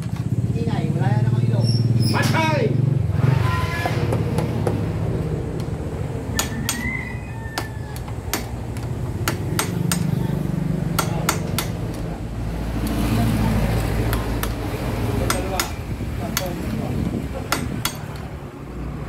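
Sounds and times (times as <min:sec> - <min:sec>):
hammer tapping metal: 0:06.4 - 0:06.9, 0:07.6 - 0:12.1, 0:13.8 - 0:16.8, 0:17.4 - 0:18.3.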